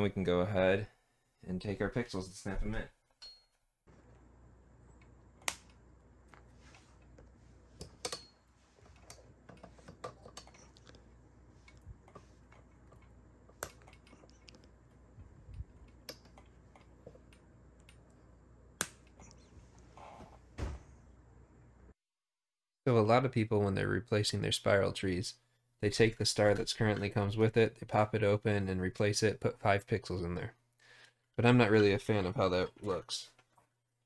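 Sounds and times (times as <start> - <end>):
sharp plastic snaps: 5.4 - 5.8.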